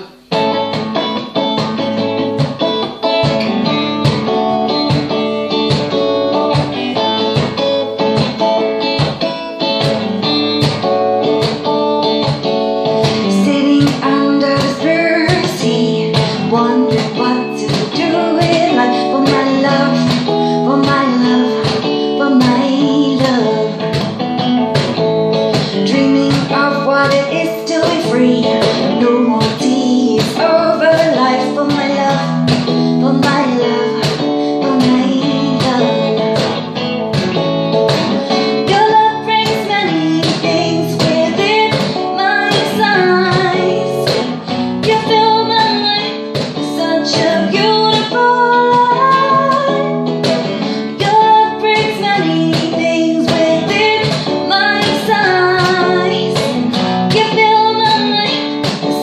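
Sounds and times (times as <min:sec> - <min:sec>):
steady percussive beat: 0:00.0 - 0:18.0
electric guitar chords: 0:00.0 - 0:59.0
woman singing: 0:09.0 - 0:59.0.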